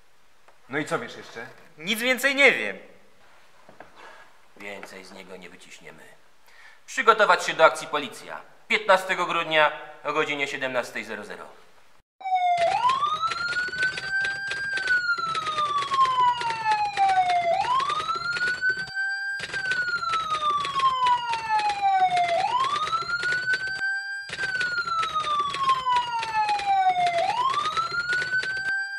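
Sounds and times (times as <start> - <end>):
crackling static: 0.0 - 6.5
police siren wailing: 12.2 - 28.9.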